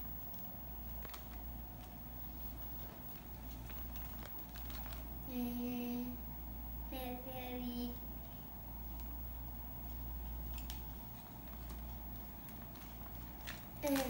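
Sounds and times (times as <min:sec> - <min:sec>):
plastic bag rustling: 0:00.8 - 0:05.2, 0:09.8 - 0:14.0.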